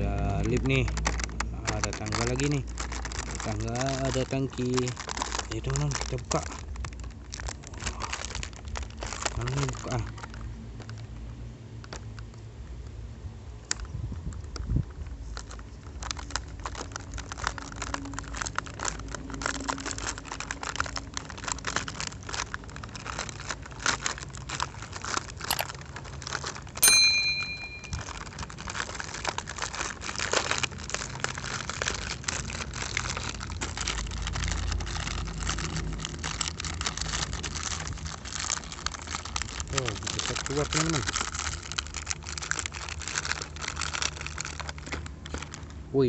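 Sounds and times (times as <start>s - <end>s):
plastic packaging crinkling: 0.0s - 12.9s, 13.6s - 46.0s
ringing chime sound effect: 26.8s - 28.0s.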